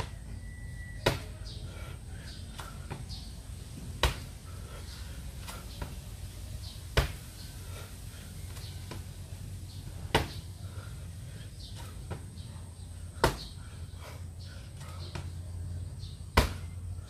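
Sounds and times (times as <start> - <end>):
low hum: 0.0 - 17.0
sharp impacts from burpees: 1.0 - 1.6, 4.0 - 7.9, 9.9 - 10.5, 11.6 - 13.8, 16.0 - 17.0.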